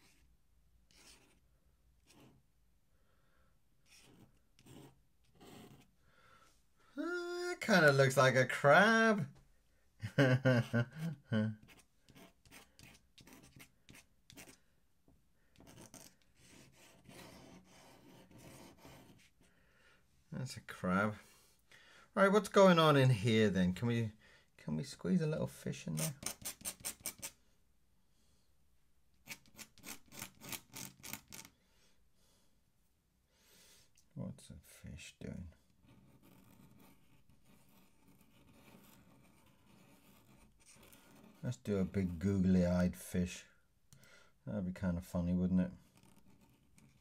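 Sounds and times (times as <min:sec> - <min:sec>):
pen scratching on paper: 0:00.9 - 0:01.4, 0:02.0 - 0:02.4, 0:03.8 - 0:05.9, 0:11.6 - 0:14.6, 0:15.6 - 0:19.4, 0:26.0 - 0:27.4, 0:29.2 - 0:31.5, 0:35.8 - 0:42.3, 0:45.9 - 0:47.0.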